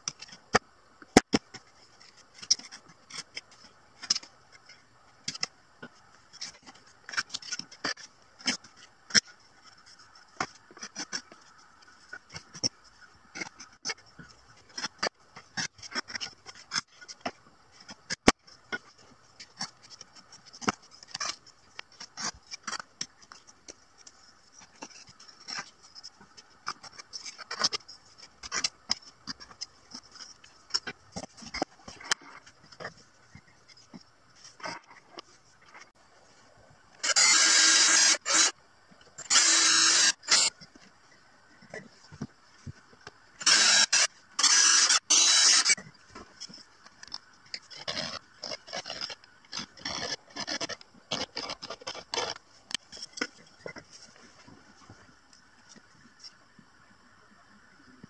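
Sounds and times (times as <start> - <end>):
blade scraping wood: 6.3 - 35.9, 37.0 - 38.6, 39.2 - 40.8, 43.4 - 54.0.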